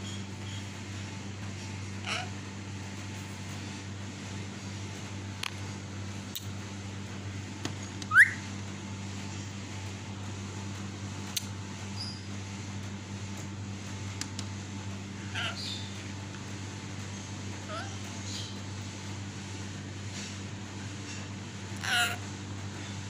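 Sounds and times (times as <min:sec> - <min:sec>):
steady low hum: 0:00.0 - 0:23.0
parakeet chirp: 0:08.1 - 0:08.5, 0:12.0 - 0:12.3, 0:15.3 - 0:16.0, 0:21.8 - 0:22.2.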